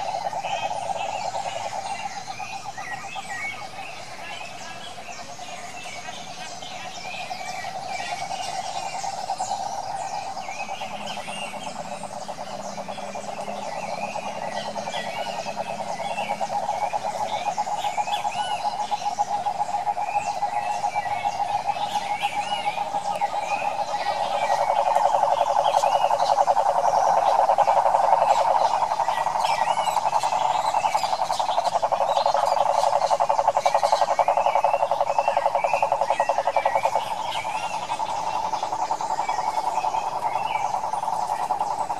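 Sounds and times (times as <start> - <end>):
toad calling in low trill: 7.8 - 41.9.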